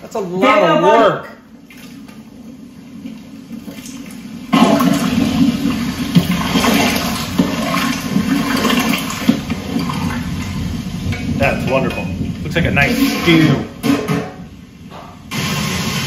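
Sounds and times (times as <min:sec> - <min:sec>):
water splashing into a pot: 0:02.9 - 0:12.0.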